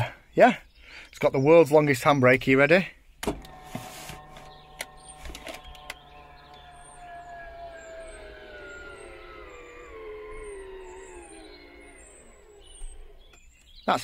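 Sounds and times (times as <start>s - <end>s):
clicks: 3.2s - 13.4s
device whine falling in pitch: 3.4s - 13.5s.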